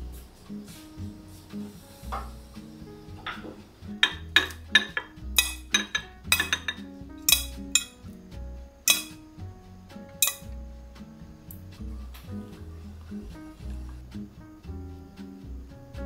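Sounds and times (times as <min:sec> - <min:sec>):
soft background music: 0:00.0 - 0:16.0
dishes and utensils clinking: 0:03.2 - 0:08.0, 0:08.9 - 0:09.2, 0:10.2 - 0:10.5.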